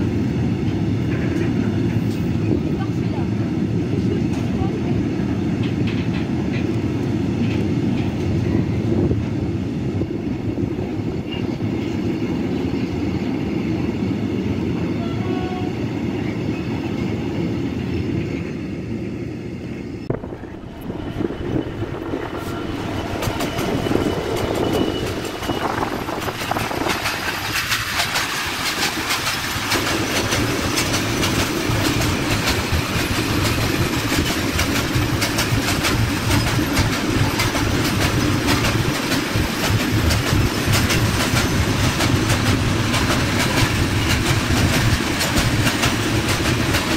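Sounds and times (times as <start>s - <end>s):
diesel locomotives: 0.0s - 46.9s
train wheels rumbling on rail: 0.0s - 46.9s
wheel clatter at rail joints: 0.7s - 3.2s, 4.0s - 9.4s, 20.1s - 46.9s.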